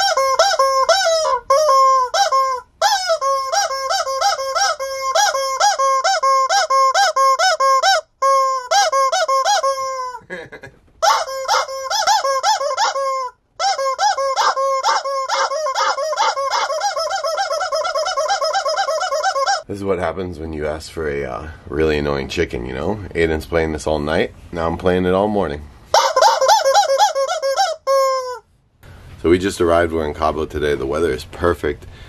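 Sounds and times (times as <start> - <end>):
rubber chicken toy squawking: 0.0 - 10.2, 11.0 - 19.7, 25.9 - 28.4.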